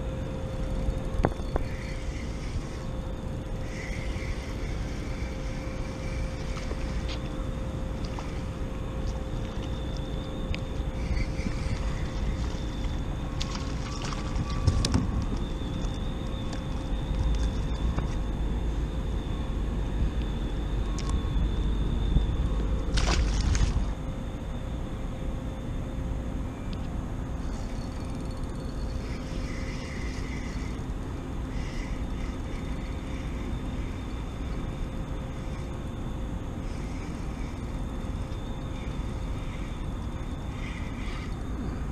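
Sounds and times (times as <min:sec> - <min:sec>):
wind rumbling on microphone: 0:00.0 - 0:24.7
steady hum: 0:00.0 - 0:41.9.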